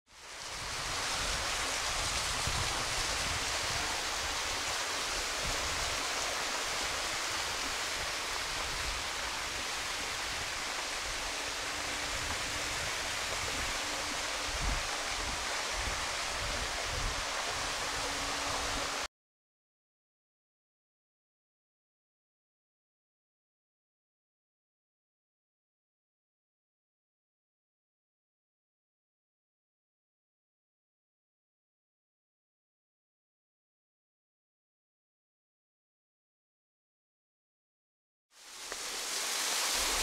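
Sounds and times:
rushing water: 0:00.1 - 0:19.1, 0:38.4 - 0:40.0.

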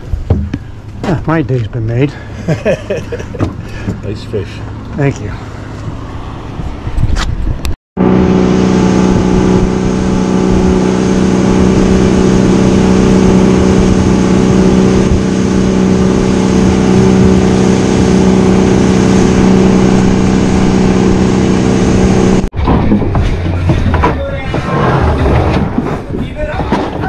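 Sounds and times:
outboard motor running: 0:08.0 - 0:25.3
boat wake rushing: 0:08.0 - 0:27.0.

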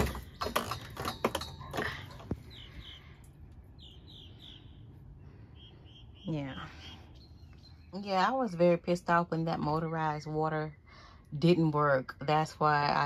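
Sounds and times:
faint bird chirps: 0:01.4 - 0:08.6.

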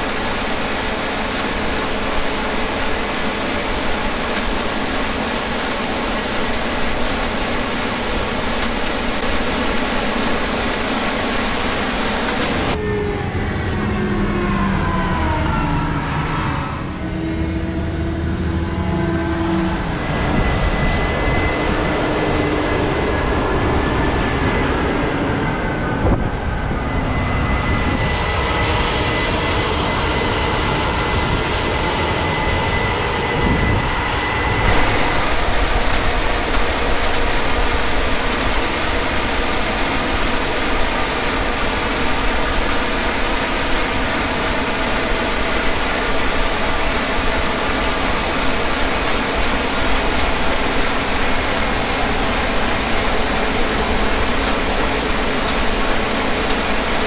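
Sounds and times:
bright hissy machine noise: 0:00.0 - 0:12.8, 0:34.6 - 0:57.0
combine harvester drone: 0:00.0 - 0:57.0.

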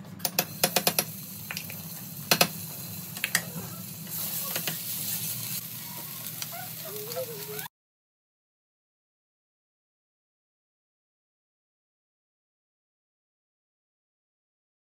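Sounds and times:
oil sizzling: 0:00.4 - 0:07.7.

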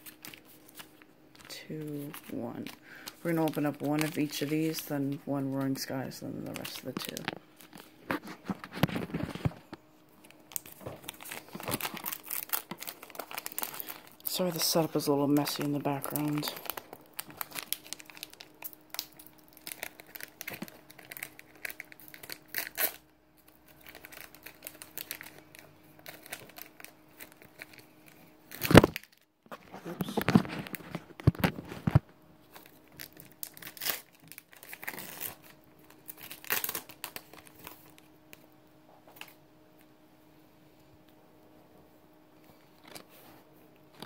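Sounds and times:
foil wrappers crinkling: 0:00.0 - 0:38.5
faint steady hum: 0:00.0 - 0:44.0.

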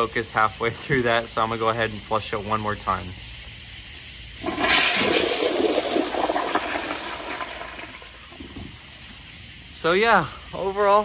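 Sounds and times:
water rushing into bowl: 0:04.4 - 0:08.6
toilet flushing: 0:04.4 - 0:08.8.

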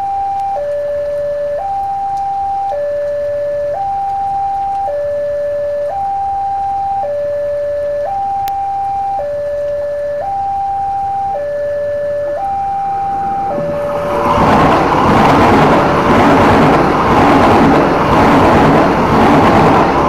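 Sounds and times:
level crossing alarm two-tone: 0:00.0 - 0:18.8
train coaches rushing by: 0:13.0 - 0:20.0.

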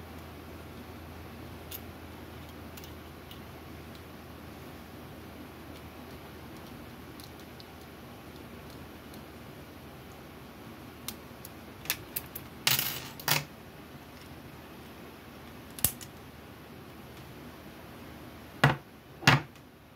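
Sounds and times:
lock picks clicking and rattling: 0:02.4 - 0:03.4.

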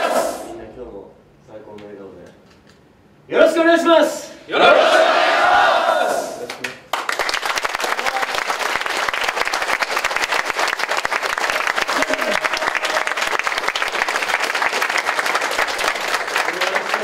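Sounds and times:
crowd applauding: 0:06.5 - 0:17.0.

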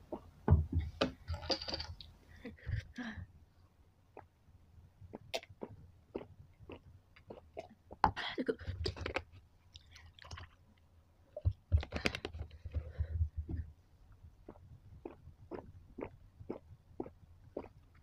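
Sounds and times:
person gulping milk: 0:04.1 - 0:04.4, 0:05.0 - 0:13.6, 0:14.3 - 0:18.0.

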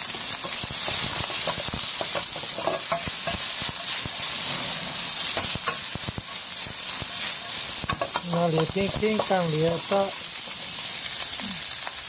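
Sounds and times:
meat sizzling in a frying pan: 0:00.0 - 0:12.0
utensil scraping a pan: 0:00.4 - 0:05.8.

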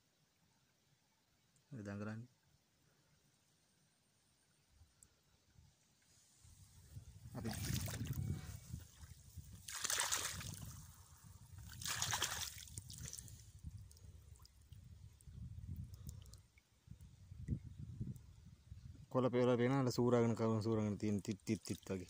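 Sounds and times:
water sloshing and splashing: 0:07.4 - 0:10.9, 0:11.6 - 0:13.7.

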